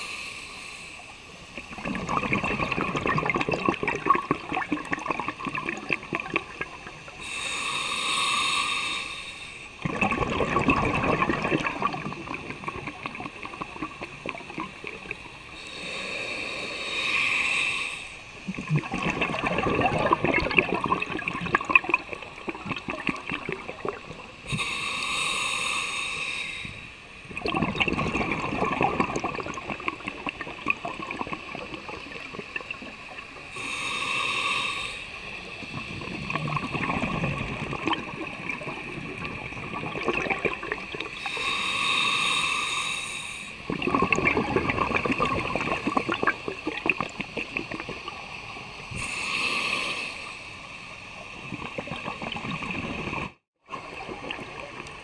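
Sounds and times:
regulator hissing inhale: 0:00.0 - 0:01.4, 0:07.2 - 0:09.8, 0:15.5 - 0:18.4, 0:24.4 - 0:27.2, 0:33.3 - 0:37.2, 0:41.2 - 0:43.7, 0:48.9 - 0:51.0
exhaled air bubbling: 0:01.0 - 0:08.6, 0:09.8 - 0:17.6, 0:18.3 - 0:25.9, 0:26.6 - 0:50.4, 0:51.1 - 0:55.0.

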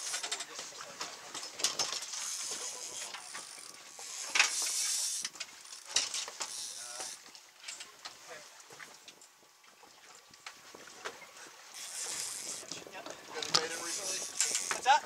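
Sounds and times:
fishing reels ratcheting: 0:00.0 - 0:00.5, 0:01.4 - 0:07.8, 0:11.7 - 0:15.0.

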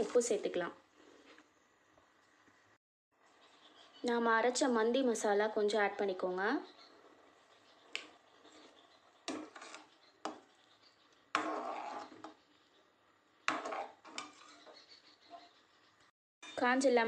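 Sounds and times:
metal ladle scraping a pot: 0:08.4 - 0:10.5, 0:11.3 - 0:12.5, 0:13.5 - 0:15.4.

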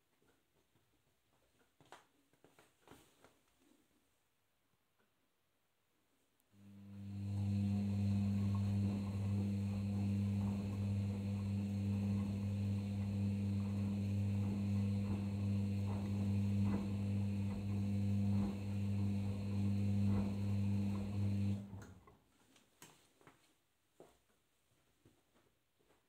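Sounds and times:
washing machine humming: 0:06.6 - 0:22.2.

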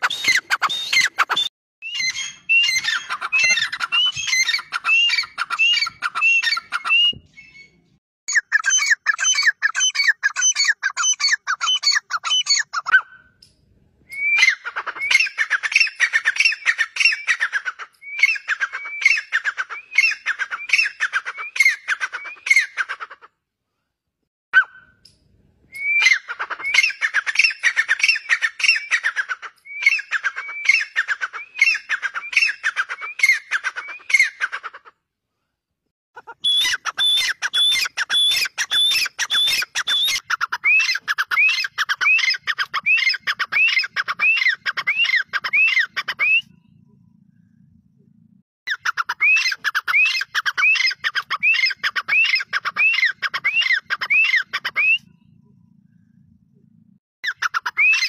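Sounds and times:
francolins calling: 0:00.1 - 0:13.3, 0:36.2 - 0:46.7, 0:48.7 - 0:55.3.

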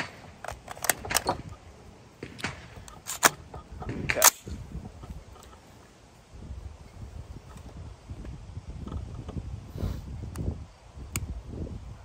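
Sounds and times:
rifle metallic clicks and clacks: 0:00.0 - 0:01.4, 0:02.2 - 0:03.4.

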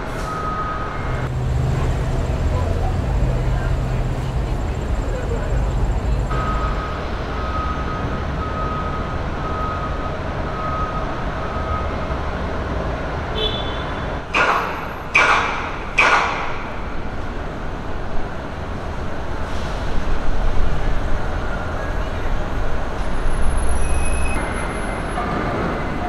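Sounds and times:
traffic and site rumble: 0:00.0 - 0:26.0
loud ringing bangs: 0:14.3 - 0:17.0.

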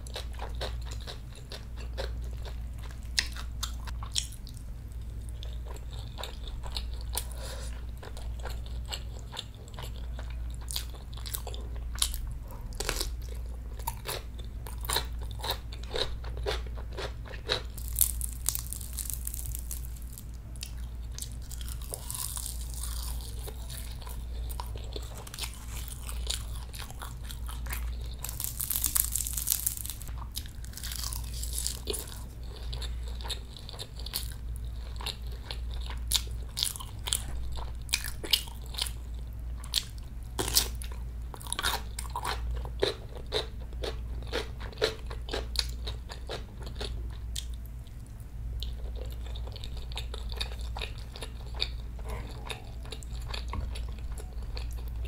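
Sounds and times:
close chewing: 0:00.0 - 0:48.0, 0:48.6 - 0:55.0
crunchy bites: 0:13.8 - 0:34.4.

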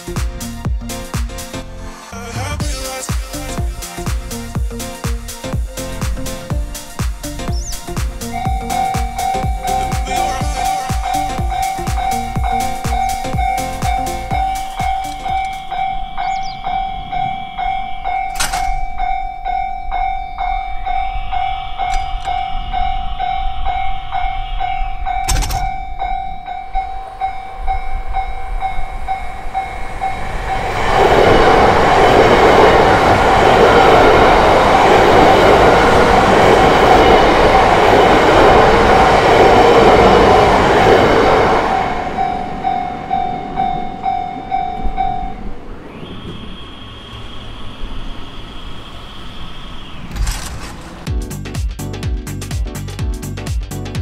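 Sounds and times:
music: 0:00.0 - 0:16.8, 0:51.1 - 0:54.0
train passing: 0:00.0 - 0:51.2
level-crossing warning bell: 0:07.6 - 0:51.0.

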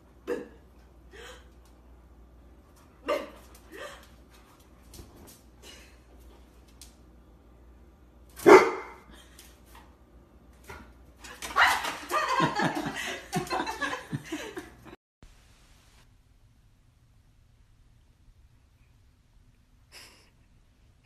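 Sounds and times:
large dog barking: 0:08.4 - 0:09.0.

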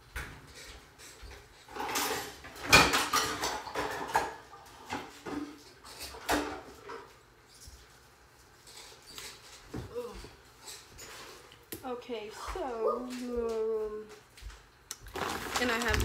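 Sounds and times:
dishes and utensils clattering: 0:00.5 - 0:07.2.

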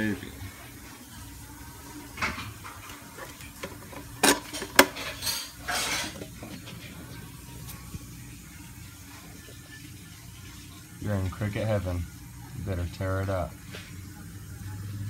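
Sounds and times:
hard plastic clattering: 0:02.2 - 0:06.8.

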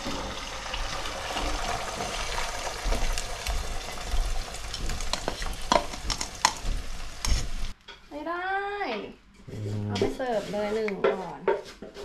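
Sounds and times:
egg sizzling in oil: 0:00.0 - 0:07.8.

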